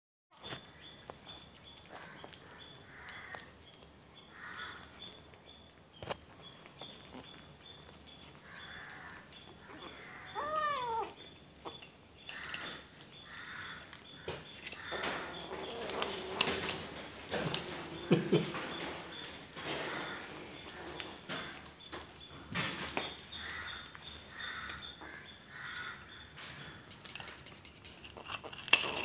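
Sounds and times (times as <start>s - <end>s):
kitten meowing: 9.8s - 11.2s.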